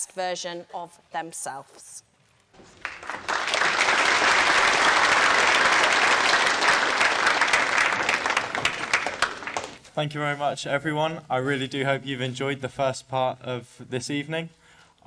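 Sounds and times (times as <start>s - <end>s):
audience applauding: 2.6s - 9.8s.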